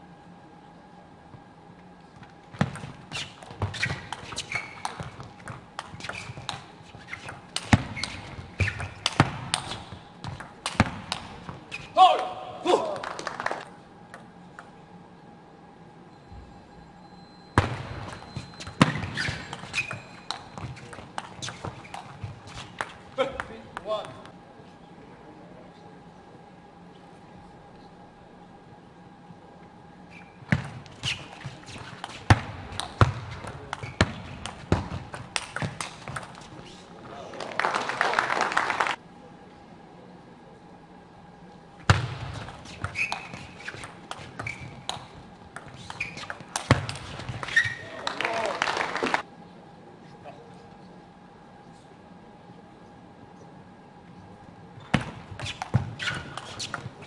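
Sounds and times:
faint hall ambience: 0.0s - 57.0s
shoes squeaking on floor: 2.5s - 10.4s, 17.1s - 23.2s, 30.1s - 37.0s, 42.3s - 48.0s, 54.8s - 57.0s.

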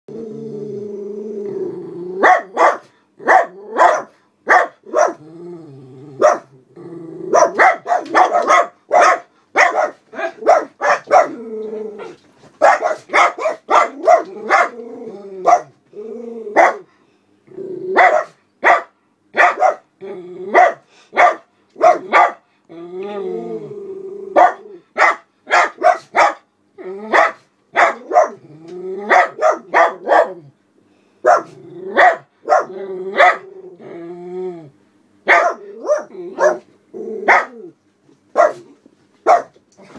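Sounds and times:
small dogs barking sharply: 2.2s - 5.2s, 7.3s - 11.4s, 12.6s - 14.8s, 18.0s - 19.9s, 20.6s - 22.4s, 24.4s - 26.5s, 27.1s - 28.4s, 29.1s - 30.4s, 31.3s - 33.4s, 35.3s - 36.7s, 37.3s - 37.6s, 38.4s - 39.6s.

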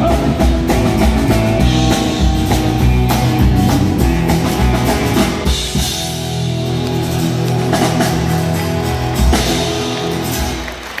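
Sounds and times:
country band playing: 0.0s - 11.0s.

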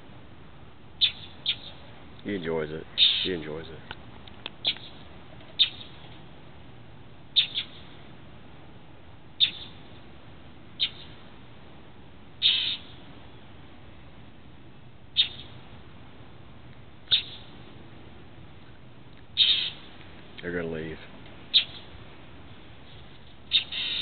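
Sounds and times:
bird alarm calls: 1.0s - 1.8s, 2.9s - 3.6s, 4.6s - 6.1s, 7.3s - 8.0s, 9.4s - 9.9s, 10.8s - 11.2s, 12.4s - 13.0s, 15.1s - 15.6s, 17.0s - 17.5s, 19.4s - 19.9s, 21.5s - 22.0s, 23.5s - 24.0s.

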